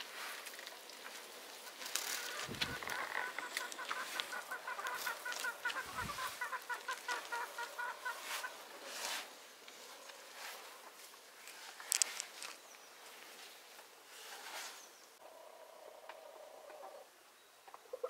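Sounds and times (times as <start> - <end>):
chicken clucking: 2.2 - 9.2.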